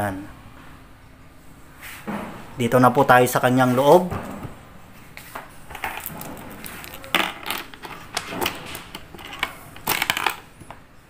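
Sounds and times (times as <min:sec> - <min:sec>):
keys jingling: 0:05.8 - 0:10.4.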